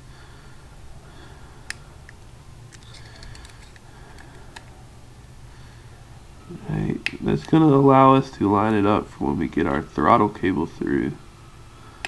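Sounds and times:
low steady hum: 0.0s - 12.0s
clicks of small metal parts: 2.1s - 4.7s.

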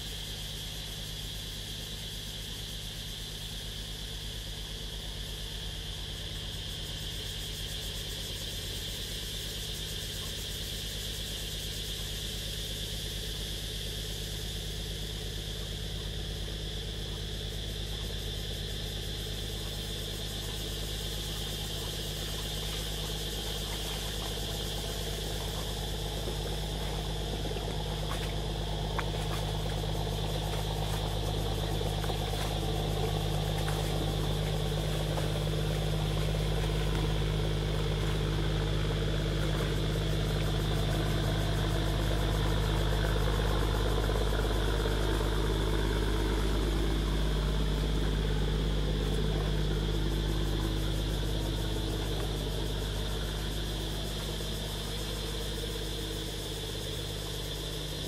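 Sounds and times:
motor engine humming: 14.0s - 58.0s.

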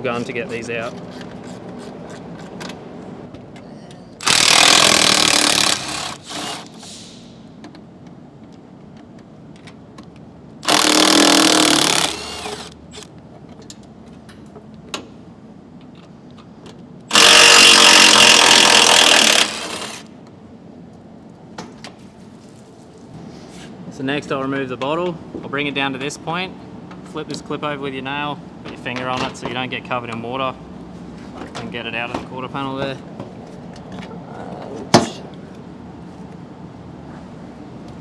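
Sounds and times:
impact wrench hammering: 4.2s - 6.8s, 10.6s - 12.7s, 17.1s - 20.1s.

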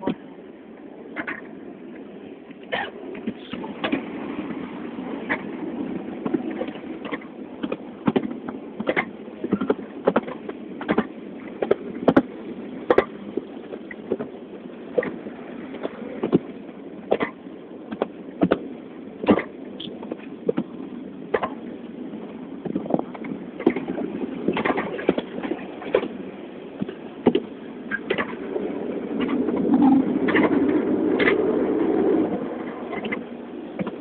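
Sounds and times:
train carriage rumble: 0.0s - 34.0s
wheels knocking and clicking: 1.2s - 1.5s, 6.2s - 20.7s, 21.3s - 21.7s, 22.6s - 26.2s, 26.8s - 34.0s.

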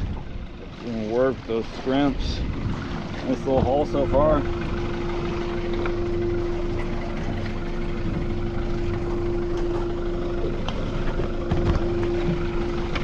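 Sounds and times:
outboard motor idling: 0.0s - 13.0s
whining tone: 3.2s - 13.0s.

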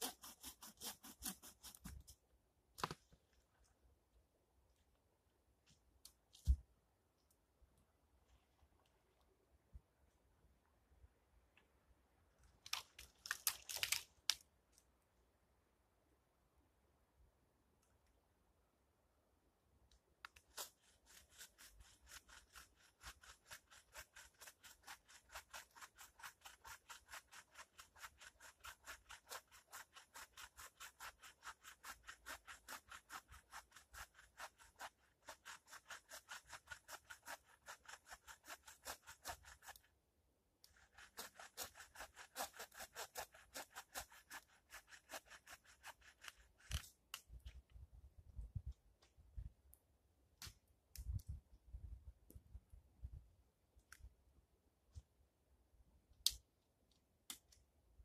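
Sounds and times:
hand saw cutting a log: 0.0s - 1.8s, 20.6s - 39.8s, 40.7s - 46.5s.

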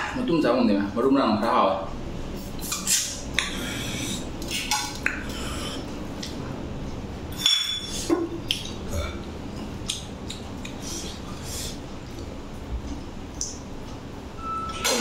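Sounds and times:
chewing and smacking: 8.4s - 14.0s.

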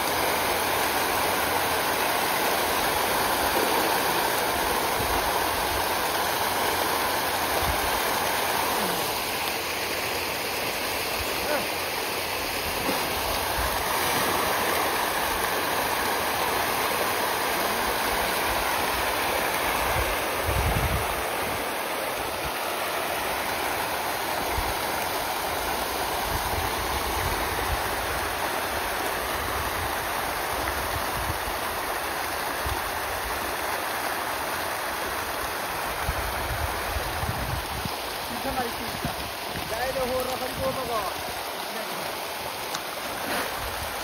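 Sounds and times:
fish splashing at water surface: 12.5s - 20.4s.

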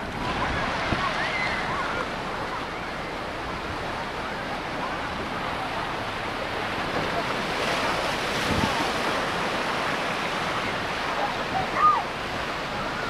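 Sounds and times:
ocean surf washing onto beach: 0.0s - 13.0s
wind rumbling on microphone: 0.0s - 13.0s.

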